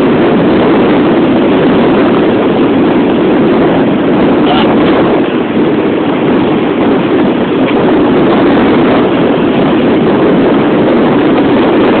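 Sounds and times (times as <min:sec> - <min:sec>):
rough sea breaking against rocks: 0:00.0 - 0:12.0.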